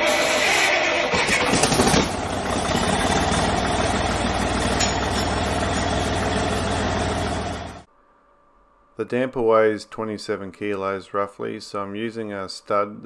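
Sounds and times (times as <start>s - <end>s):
diesel engine idling: 0.8s - 7.9s.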